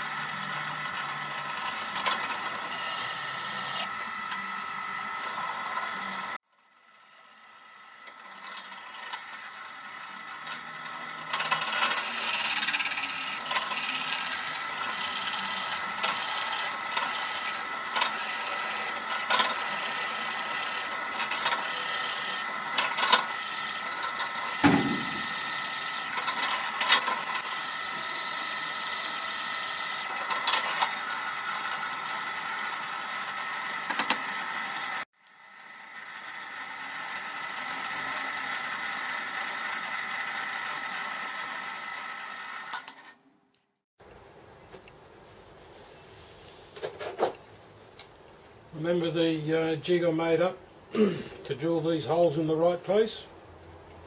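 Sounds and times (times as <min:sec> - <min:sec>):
drill press whine: 0:00.0 - 0:43.3
drill bit crackling in metal: 0:10.4 - 0:35.4
dull thump: 0:24.6 - 0:25.4.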